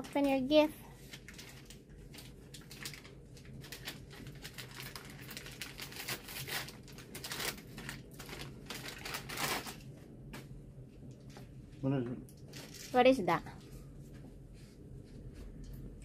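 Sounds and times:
wrapping paper crinkling: 0:00.2 - 0:09.9, 0:12.4 - 0:13.0.

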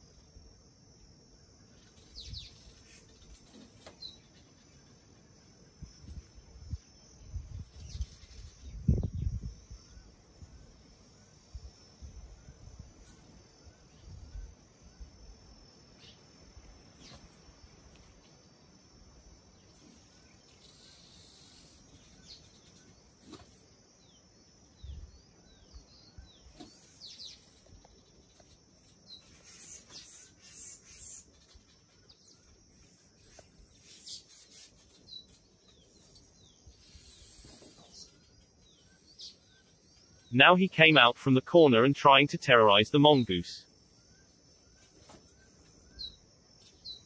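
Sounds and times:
high insect hum: 0:00.0 - 0:47.0
small birds chirping: 0:00.0 - 0:47.0.

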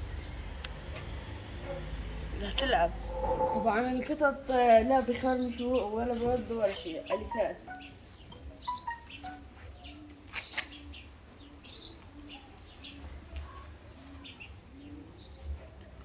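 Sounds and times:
birds chirping: 0:02.4 - 0:13.0
repeating low note: 0:02.6 - 0:04.3.

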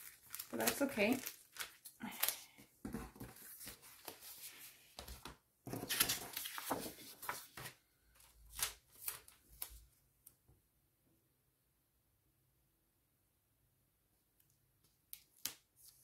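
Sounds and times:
paper rustling and sliding: 0:03.2 - 0:07.8.

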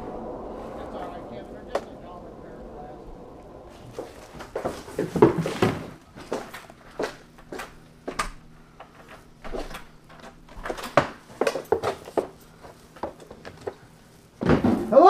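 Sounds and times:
footsteps: 0:00.0 - 0:10.4
faint steady hum: 0:00.0 - 0:15.0
objects knocking and clattering: 0:04.3 - 0:06.6.

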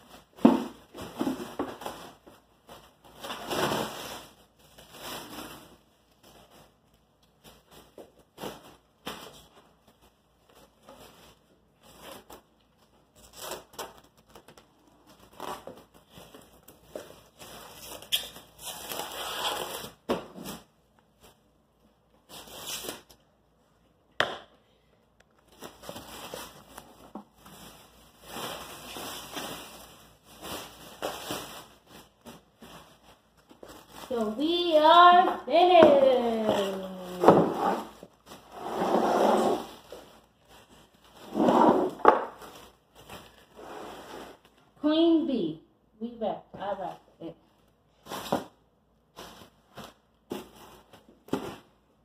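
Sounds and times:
plastic stretch wrap crackling: 0:00.0 - 0:21.5, 0:25.3 - 0:38.6, 0:39.5 - 0:43.6.

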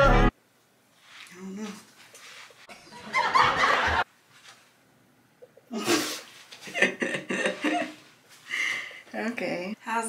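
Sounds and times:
woman laughing: 0:05.7 - 0:08.0.

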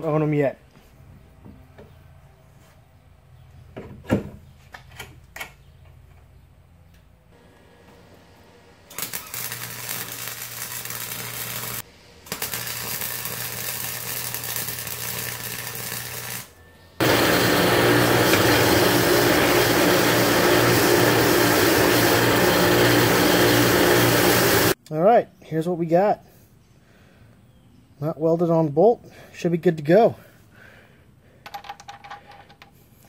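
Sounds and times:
arc welding crackling buzz: 0:08.9 - 0:24.8.

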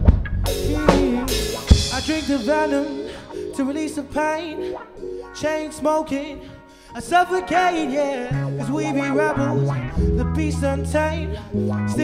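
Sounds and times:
drum kit: 0:00.0 - 0:04.2
person singing: 0:00.5 - 0:12.0.

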